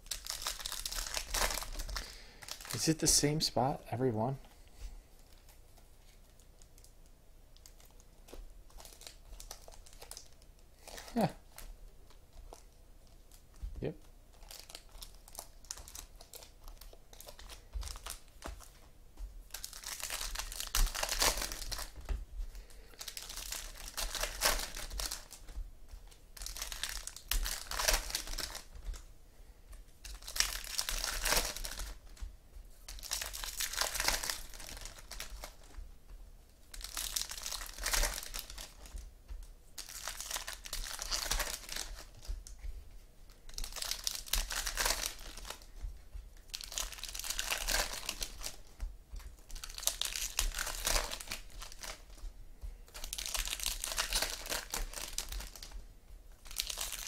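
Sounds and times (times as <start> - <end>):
foil packs tearing and crinkling: 0.0 - 3.1, 14.4 - 18.3, 19.5 - 22.0, 22.9 - 25.5, 26.4 - 29.0, 30.0 - 32.1, 32.9 - 35.7, 36.7 - 38.9, 39.8 - 42.2, 43.5 - 45.7, 46.5 - 48.6, 49.5 - 52.2, 52.9 - 55.8, 56.4 - 57.0.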